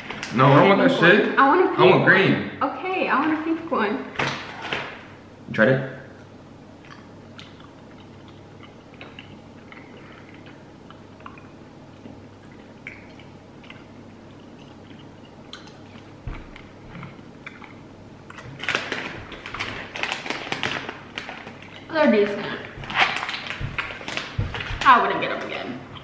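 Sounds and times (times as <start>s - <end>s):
low room hum: 0.0s - 26.0s
chewing and lip smacks: 6.2s - 18.6s
plastic packet crinkling: 18.4s - 25.5s.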